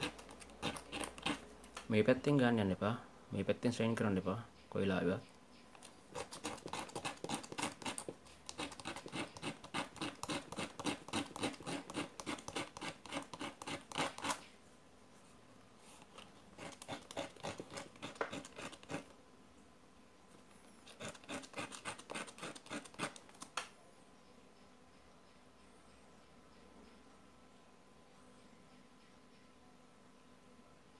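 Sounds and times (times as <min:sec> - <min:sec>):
metal rubbed on sandpaper: 0:00.0 - 0:01.4, 0:06.1 - 0:14.4, 0:16.6 - 0:19.1, 0:20.9 - 0:23.2.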